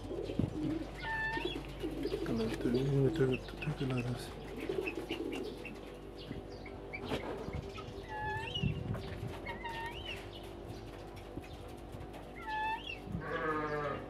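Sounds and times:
bird chirping: 0:00.0 - 0:11.7
steady low hum: 0:00.0 - 0:14.0
sheep bleating: 0:13.2 - 0:14.0.

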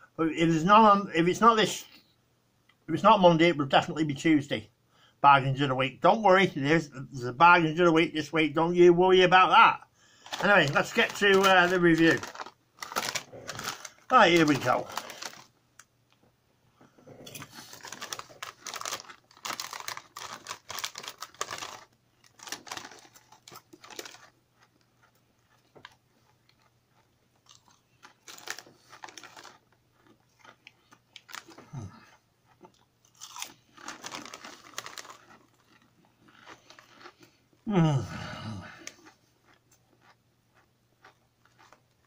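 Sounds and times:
chewing crunchy crisps: 0:10.2 - 0:15.6, 0:17.2 - 0:37.8, 0:38.5 - 0:42.0.

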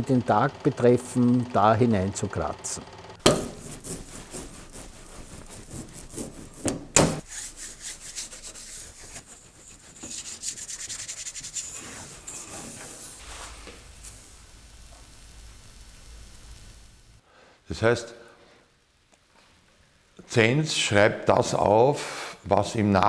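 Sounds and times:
sharp knocks: 0:03.2 - 0:04.0, 0:06.1 - 0:07.2
metal point scratching copper: 0:03.2 - 0:14.1.

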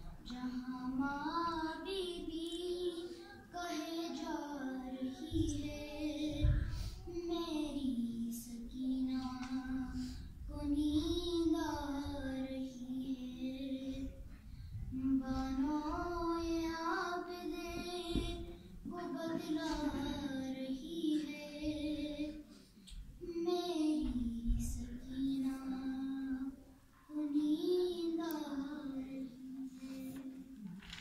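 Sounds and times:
breaths: 0:03.0 - 0:03.5, 0:06.6 - 0:07.2, 0:09.9 - 0:10.4, 0:14.3 - 0:15.4, 0:22.4 - 0:23.0, 0:29.7 - 0:30.5.

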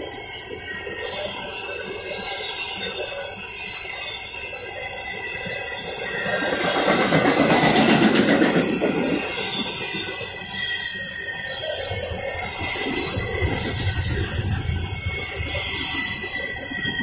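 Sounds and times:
freight train wheels clattering: 0:04.0 - 0:17.0.

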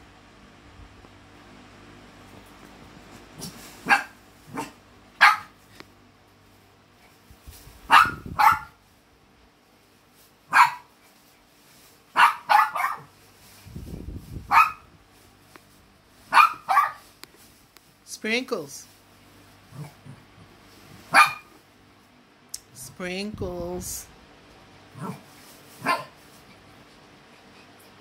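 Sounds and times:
small dog barking: 0:03.8 - 0:05.6, 0:07.8 - 0:08.8, 0:10.5 - 0:11.0, 0:12.1 - 0:13.2, 0:14.5 - 0:14.9, 0:16.2 - 0:17.1, 0:21.1 - 0:21.6, 0:24.9 - 0:26.2.

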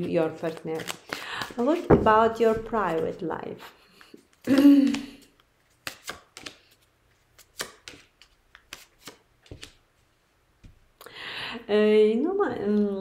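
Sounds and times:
cards snapping and tapping on table: 0:05.8 - 0:06.6, 0:07.4 - 0:09.8.

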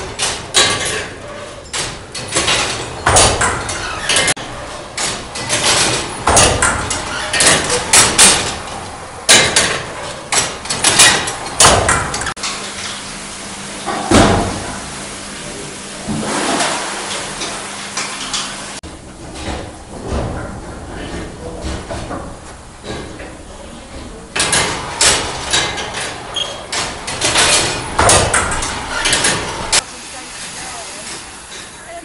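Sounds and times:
steam engine clanking: 0:00.0 - 0:13.1, 0:16.1 - 0:32.0
steam hissing: 0:28.7 - 0:32.0.

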